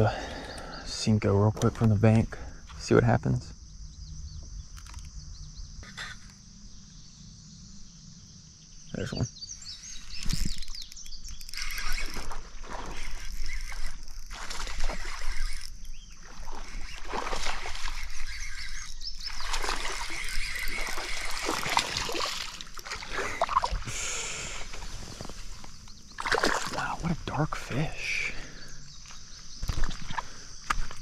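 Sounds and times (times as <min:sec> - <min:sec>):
fish thrashing water splashing: 0:14.2 - 0:15.4, 0:16.2 - 0:18.3, 0:19.3 - 0:23.8, 0:26.2 - 0:26.8.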